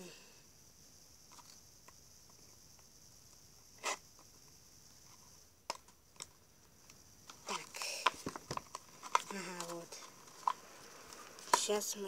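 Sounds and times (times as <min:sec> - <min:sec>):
faint steady hiss: 0:00.0 - 0:12.0
packaging rustle: 0:07.5 - 0:11.6.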